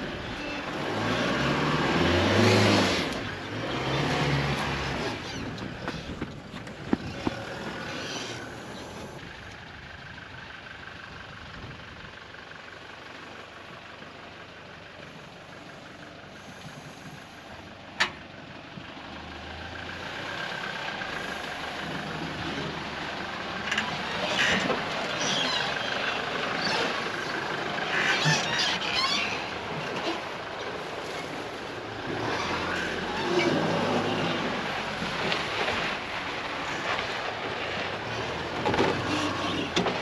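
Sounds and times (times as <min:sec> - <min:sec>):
tyres crackling on sand: 0:00.0 - 0:09.3
vehicle engine and tyre noise: 0:00.0 - 0:40.0.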